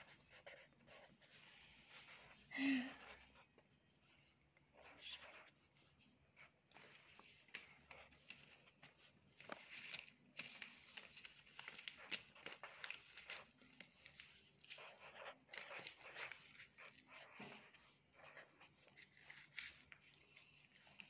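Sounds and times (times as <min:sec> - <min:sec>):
pen scratching on paper: 0:00.0 - 0:09.6, 0:10.6 - 0:19.4.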